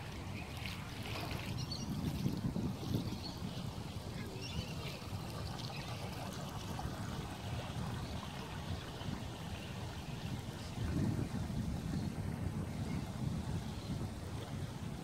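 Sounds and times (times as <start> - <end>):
small waves lapping: 0.0 - 15.0
wind rumble on microphone: 0.0 - 15.0.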